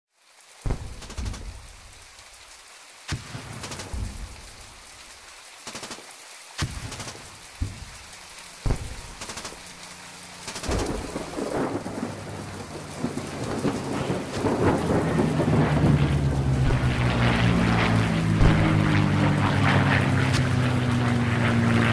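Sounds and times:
steady rain: 0.1 - 21.9
deep booms rumbling: 0.7 - 1.9, 3.9 - 4.8, 7.6 - 9.7, 10.7 - 21.5
low droning hum: 6.7 - 21.9.

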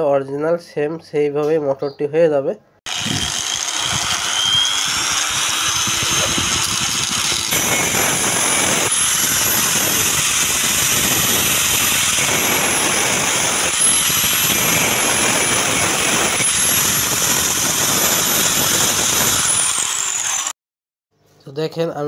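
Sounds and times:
power tool whining: 2.9 - 20.6.

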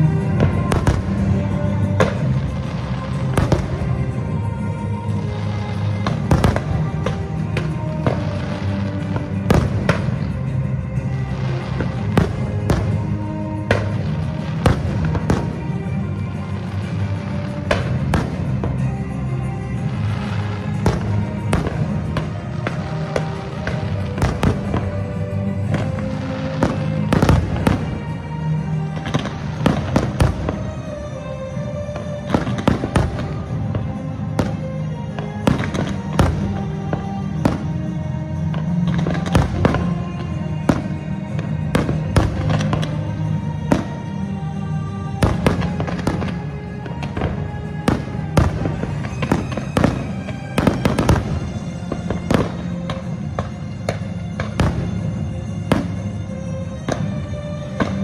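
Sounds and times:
fireworks bursting with sharp bangs: 0.0 - 58.0
music: 0.0 - 58.0.

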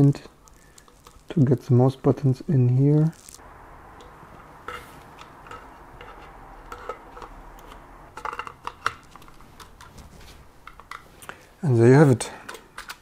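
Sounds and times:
plastic keyboard parts clicking: 12.4 - 13.0.

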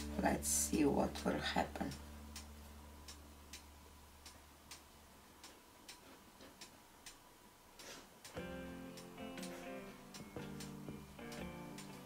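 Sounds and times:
background music: 0.0 - 3.6, 8.4 - 12.0
faint ticking: 1.1 - 12.0.

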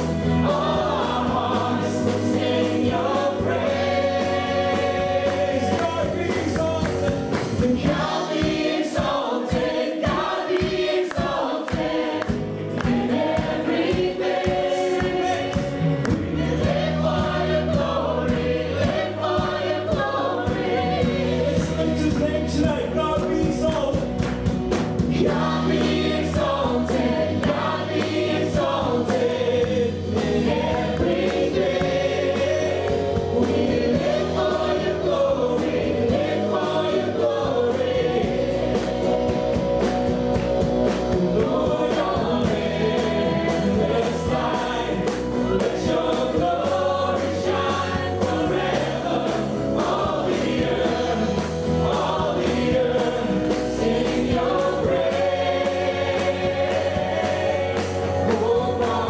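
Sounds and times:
sustained bass notes: 0.0 - 8.3, 12.3 - 59.0
voices singing along: 0.0 - 24.0, 25.1 - 59.0
man singing lead: 4.7 - 8.1, 58.1 - 59.0.

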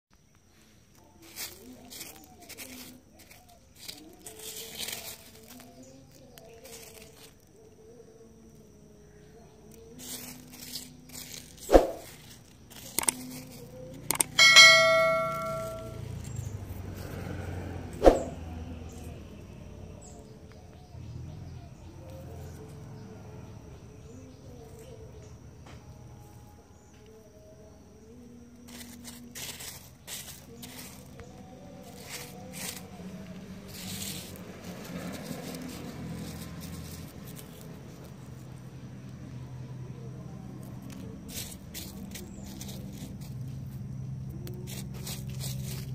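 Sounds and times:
fingers rubbing through wet gravel: 1.0 - 7.6, 9.6 - 14.4, 28.6 - 38.7, 40.4 - 45.9
quick clicks: 12.7 - 14.4
bright bell ding: 14.1 - 16.0.

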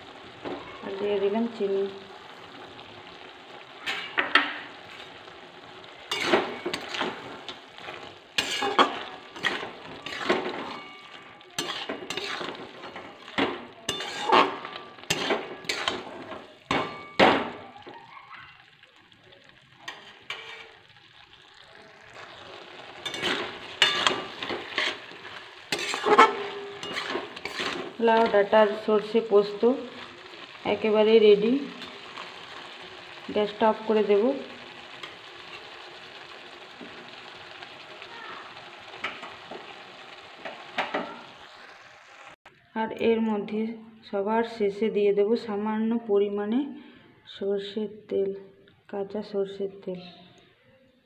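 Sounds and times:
spatula scraping metal pan: 6.1 - 17.2, 19.9 - 20.9, 22.1 - 28.5.

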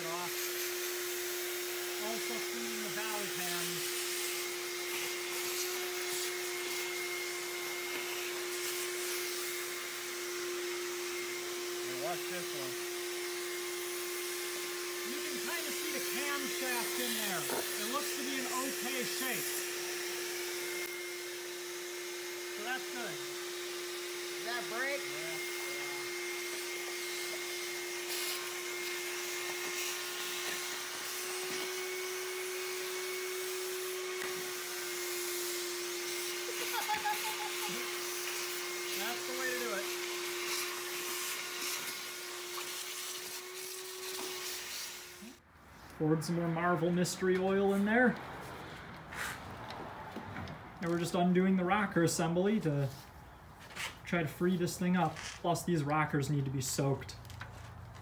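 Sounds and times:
small electric motor whining: 0.0 - 45.4.

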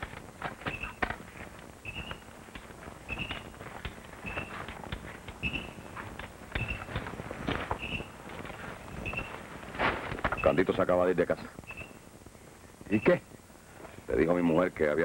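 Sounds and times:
footsteps through undergrowth: 0.0 - 10.6
small animal high chirp: 0.7 - 1.0, 3.1 - 3.4.

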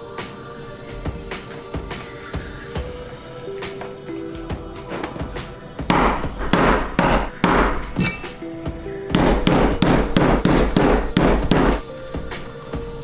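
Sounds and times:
background music: 0.0 - 13.0
metallic clink: 8.0 - 8.4.

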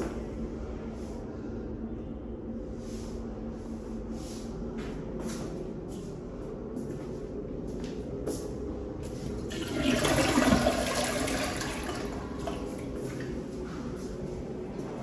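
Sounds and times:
toilet flushing: 9.3 - 14.0.

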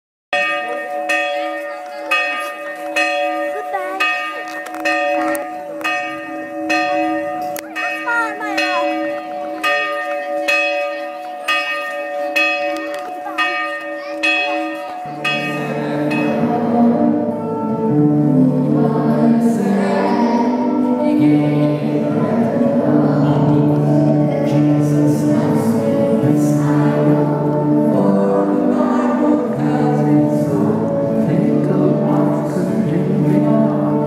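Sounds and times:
church bell tolling: 0.4 - 34.0
faint voices chattering: 0.4 - 34.0
group singing: 15.5 - 17.4, 18.2 - 34.0.

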